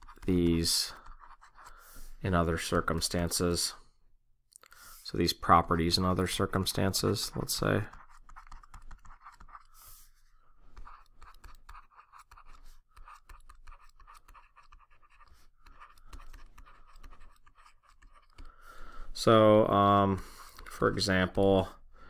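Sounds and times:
stylus scratching on tablet: 0:00.0 - 0:02.0, 0:06.3 - 0:18.6, 0:20.2 - 0:21.2.

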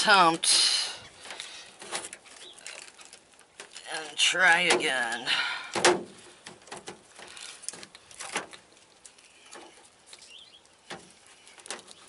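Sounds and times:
sheet metal clicking and crinkling: 0:01.1 - 0:12.0
faint bird chirp: 0:09.2 - 0:12.0.

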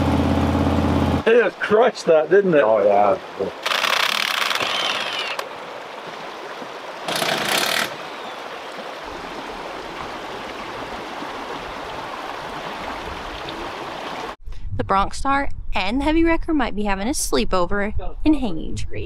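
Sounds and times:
creek rushing: 0:01.2 - 0:14.4.

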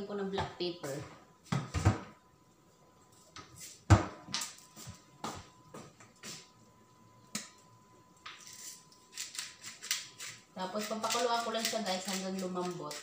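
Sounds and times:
pepper grinder clicking: 0:09.1 - 0:13.0.

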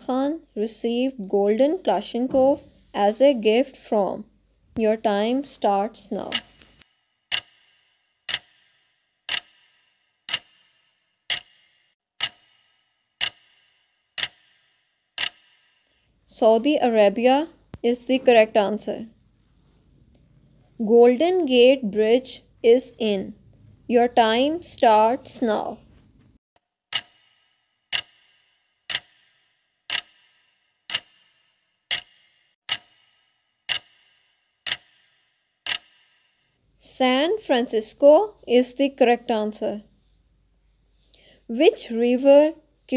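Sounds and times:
ticking clock: 0:05.2 - 0:17.4, 0:26.9 - 0:36.4.

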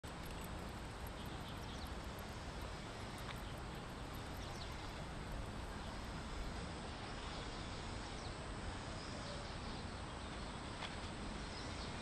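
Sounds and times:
wind and tyre rumble: 0:00.0 - 0:08.9.

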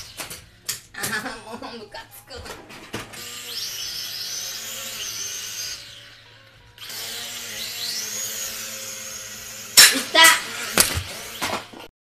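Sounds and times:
drone propeller motors whining: 0:03.2 - 0:09.8.

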